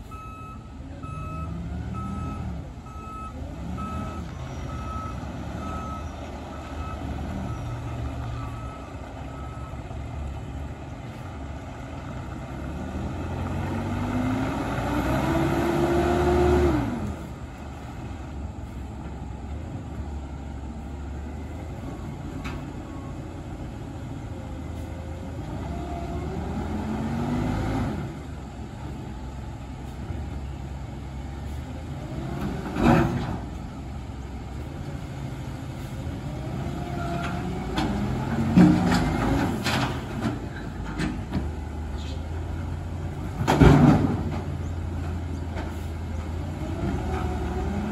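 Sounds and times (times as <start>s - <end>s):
truck reversing alarm beeping: 0.0s - 11.2s
diesel engine revving: 0.0s - 47.9s.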